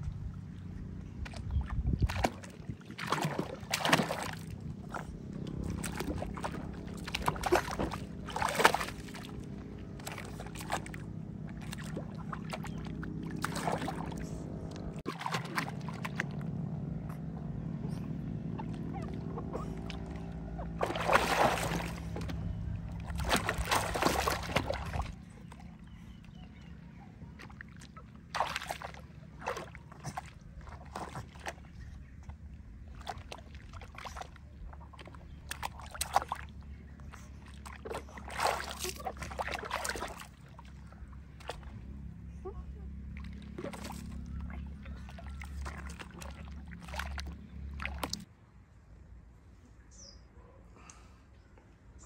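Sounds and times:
steady low hum: 0.0s - 49.9s
water splashing in plastic basin: 1.2s - 14.3s, 15.0s - 16.6s, 18.5s - 25.6s, 27.3s - 41.9s, 43.0s - 48.3s.

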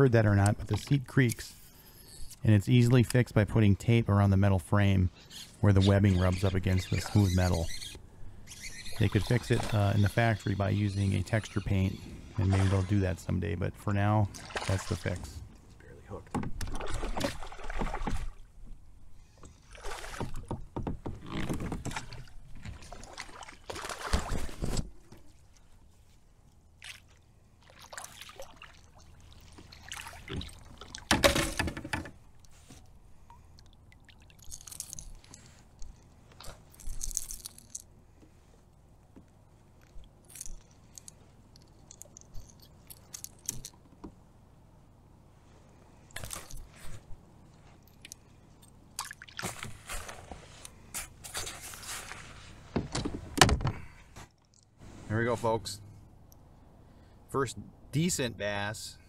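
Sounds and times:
clicks jingles and rustles: 34.4s - 37.9s, 39.8s - 43.8s.

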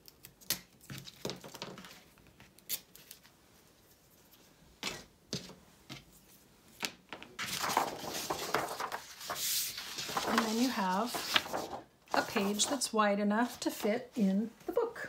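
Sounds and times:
paper rustling and sliding: 7.4s - 13.9s.

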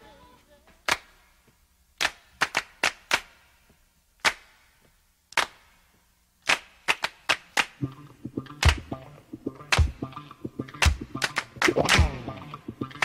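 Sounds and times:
sharp percussive hits with echo: 7.8s - 13.0s.

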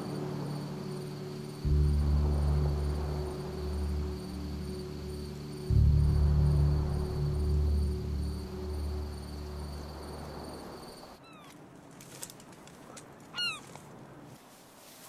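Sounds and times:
low steady drone: 0.0s - 10.8s
crickets chirping: 0.0s - 11.5s.

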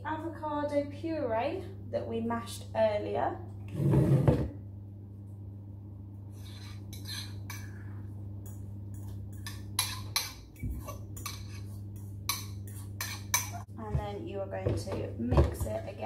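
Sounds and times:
steady low hum: 0.0s - 16.0s
spoon scraping a metal bowl: 6.3s - 7.7s, 9.4s - 13.7s.

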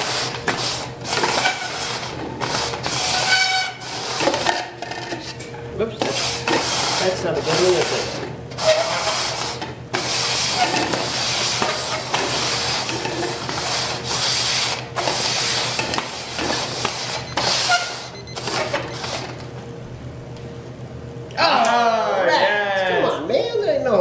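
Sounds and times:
plastic cups scraping on wood: 0.0s - 5.4s, 6.0s - 19.2s.

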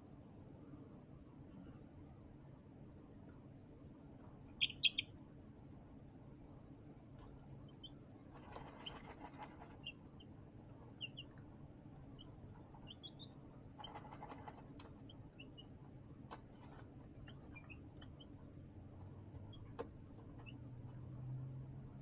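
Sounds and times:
low steady hum: 0.0s - 22.0s
chicks cheeping: 4.5s - 5.2s, 7.2s - 21.2s
chicks scratching on liner: 7.1s - 10.3s, 11.9s - 21.3s.

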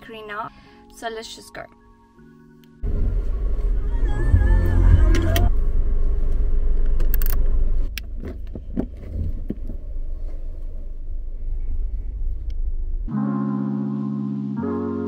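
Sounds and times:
car engine low rumble: 2.8s - 13.2s
clicks and knocks of controls: 6.8s - 9.8s.

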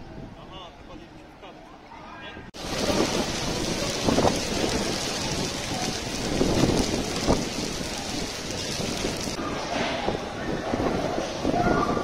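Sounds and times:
heavy rain on stone paving: 2.6s - 9.4s.

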